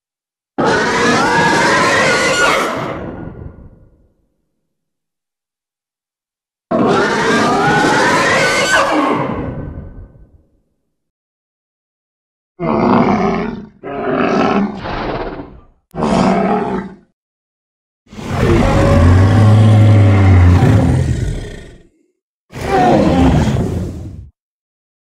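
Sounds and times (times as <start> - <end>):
monster roars: 18.1 - 22.0, 22.6 - 24.1.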